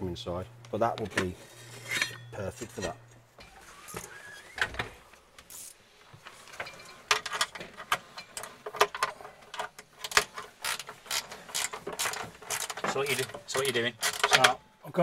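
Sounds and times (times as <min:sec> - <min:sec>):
mechanical clicking and clatter: 0:06.6 - 0:14.6.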